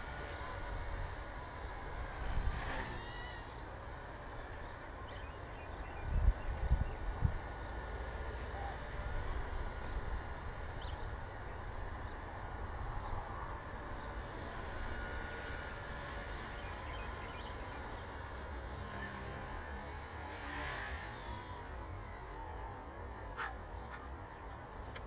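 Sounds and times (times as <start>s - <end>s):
rc helicopter motor whine: 0.0s - 25.0s
wind rumbling on microphone: 5.8s - 8.2s.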